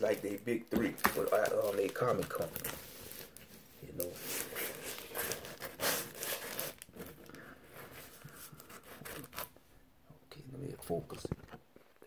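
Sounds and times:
plastic sleeves crinkling: 0.0 - 9.6.

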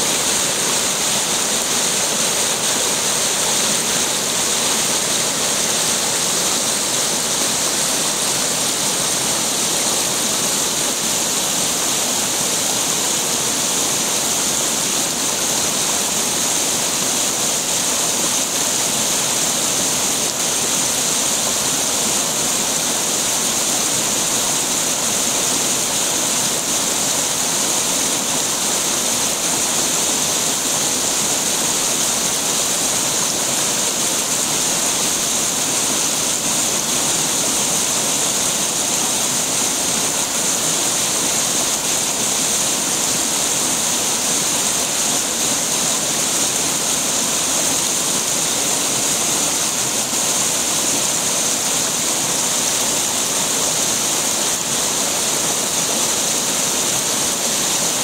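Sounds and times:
water running over stones: 0.0 - 58.0
waterfall pouring into pool: 0.0 - 58.0.

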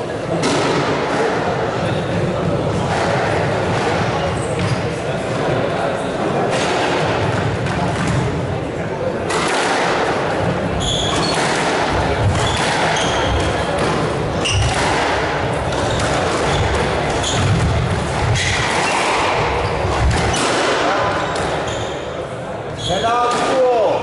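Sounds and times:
squash ball smacking rackets and walls: 0.3 - 22.2, 23.0 - 23.9
shoes squeaking on wooden floor: 10.8 - 11.5, 12.2 - 14.8, 15.7 - 17.7.

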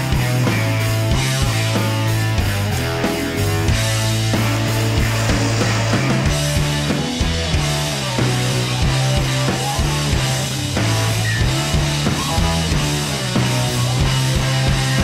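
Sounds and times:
rock music: 0.0 - 15.0
steady drum beat: 0.0 - 15.0
sustained bass notes: 0.9 - 15.0.

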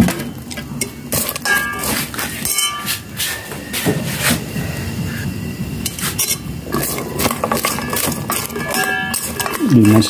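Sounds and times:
spoon scraping metal pot: 0.8 - 3.2, 5.8 - 10.0.

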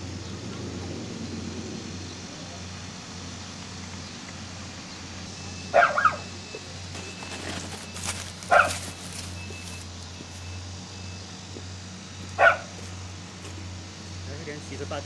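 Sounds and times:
dog barking: 5.7 - 6.3, 8.5 - 8.9, 12.4 - 12.8.

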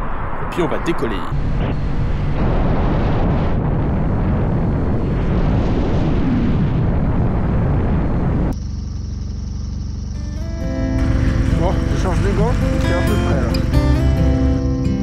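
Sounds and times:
wind rush on microphone: 1.3 - 8.6
motorcycle engine at speed: 8.6 - 14.5.

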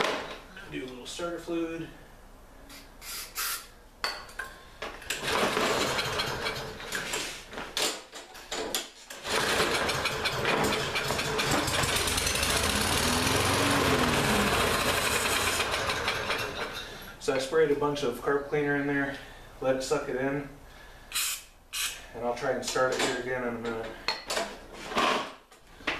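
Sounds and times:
lawn mower engine running: 5.2 - 6.9, 9.2 - 17.0.

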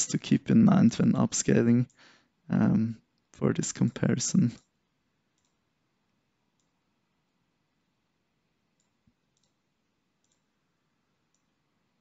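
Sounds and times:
computer mouse clicks: 4.6 - 5.7, 6.5 - 7.4, 8.7 - 10.5, 11.1 - 11.6.

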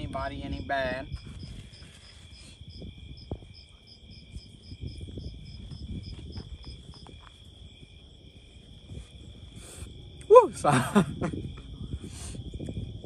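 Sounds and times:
cricket chirping in quick pulses: 0.0 - 13.0
cricket trilling: 0.0 - 13.0
rustling close to microphone: 1.1 - 3.5.

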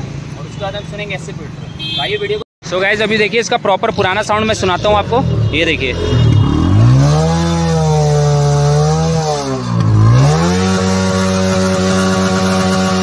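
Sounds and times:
motorcycle engine revving: 3.7 - 13.0.

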